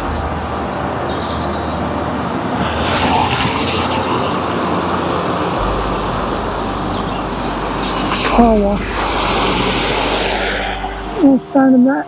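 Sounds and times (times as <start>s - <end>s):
tyres hissing through floodwater: 2.5s - 11.6s.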